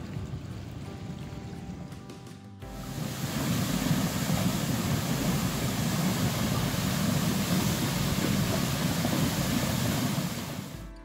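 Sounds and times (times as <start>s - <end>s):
churning whitewater: 2.7s - 10.9s.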